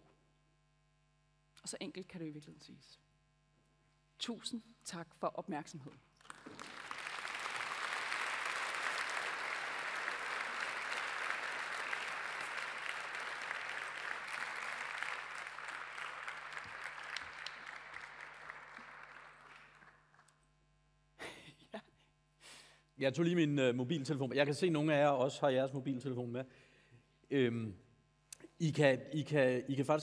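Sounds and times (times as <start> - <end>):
large audience applauding: 6.2 - 20.3.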